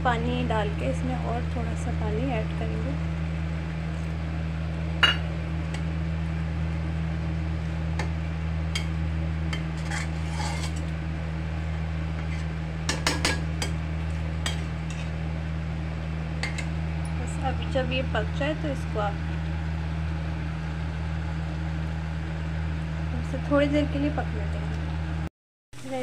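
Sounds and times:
steady low hum: 0.0 - 26.0
metal spatula scraping pan: 9.6 - 10.9, 14.4 - 15.2.

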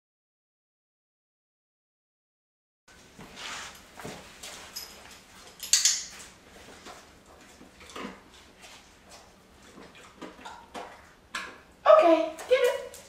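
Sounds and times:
footsteps and claws on tile: 3.2 - 11.6.

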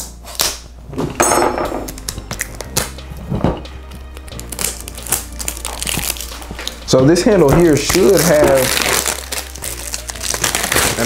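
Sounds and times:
quiet background music: 0.0 - 11.0
packaging rustling: 4.4 - 11.0.

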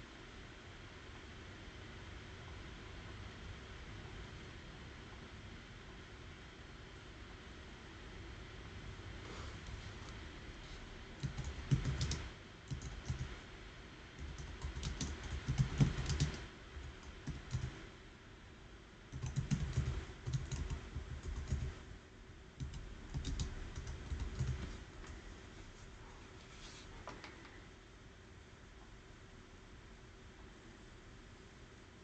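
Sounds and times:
typing on computer keyboard: 11.2 - 13.4, 14.2 - 17.8, 19.1 - 21.8, 22.6 - 24.7.

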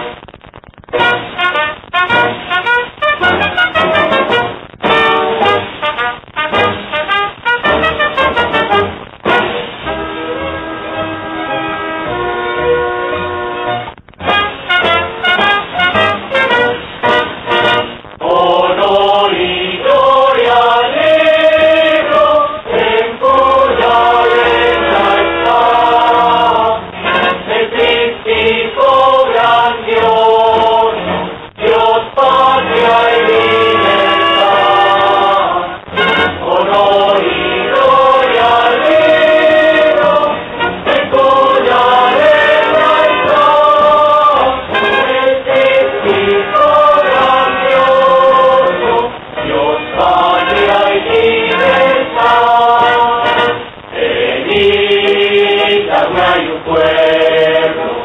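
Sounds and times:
musical backing: 0.0 - 58.0
choir singing: 14.8 - 58.0.

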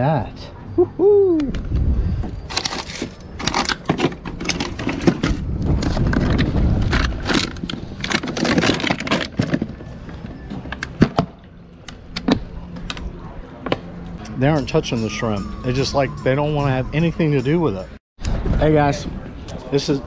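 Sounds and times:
plastic bottles shifting and rattling: 2.5 - 11.3.

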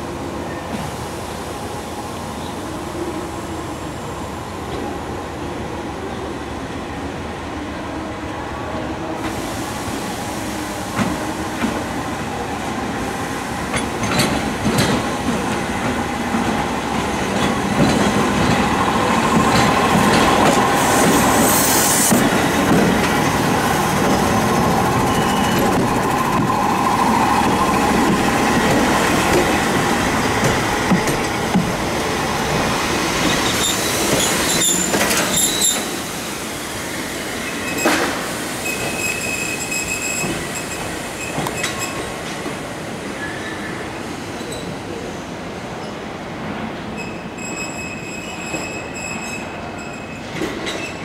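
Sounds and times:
air hiss: 9.2 - 11.9, 20.6 - 23.6
train wheels clacking over rail joints: 13.7 - 21.3, 30.4 - 31.8
train wheel squeal: 23.6 - 29.2, 33.2 - 36.0, 37.4 - 42.1, 43.2 - 44.8, 46.9 - 51.0.

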